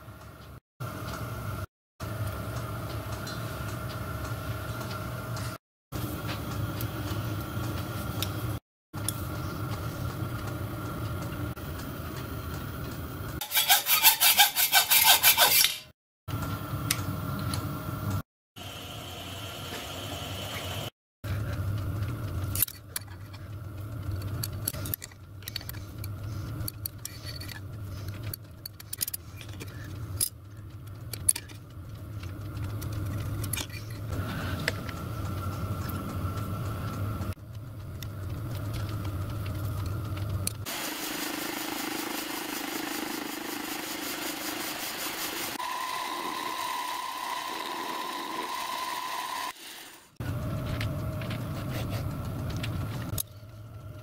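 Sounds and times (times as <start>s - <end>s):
metal parts clicking: 22.5s - 23.4s, 24.0s - 31.7s
high-pitched machine whine: 40.7s - 51.0s
machine motor humming: 40.7s - 51.2s.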